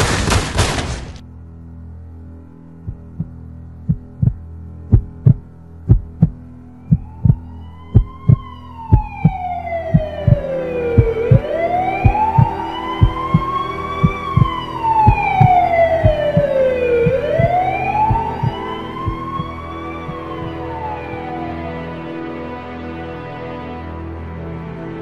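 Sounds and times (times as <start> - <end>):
heartbeat thumping: 2.9 - 20.6
emergency vehicle siren wailing: 6.7 - 25.0.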